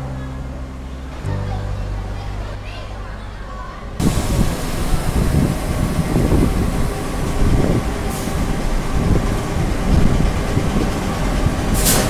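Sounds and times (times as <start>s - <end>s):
train wheels and motors rumbling: 3.9s - 12.0s
air hiss: 4.0s - 8.6s, 11.7s - 12.0s.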